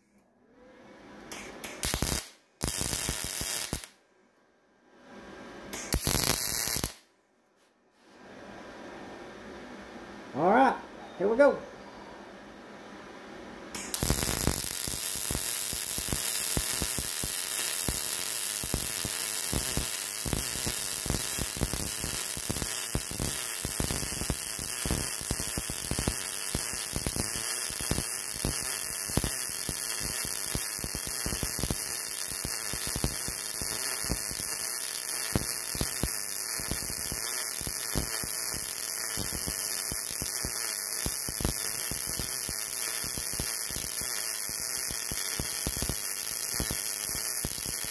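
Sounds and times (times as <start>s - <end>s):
welding arc crackling and hissing: 1.3s - 4.0s, 5.7s - 7.0s, 13.8s - 47.9s.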